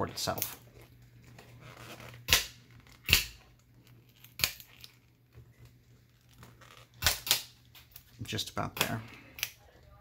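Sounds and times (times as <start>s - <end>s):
plastic rivets snapping: 4.1s - 5.0s, 7.0s - 8.1s.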